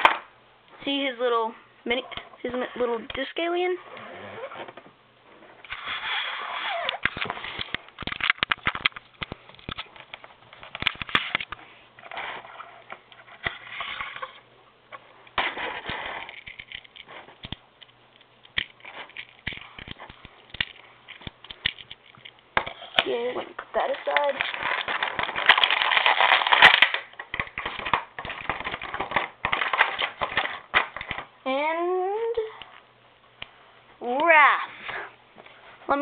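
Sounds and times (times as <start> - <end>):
rustling and scraping: 2.0 - 31.3
plastic toy pieces clicking: 24.0 - 31.2.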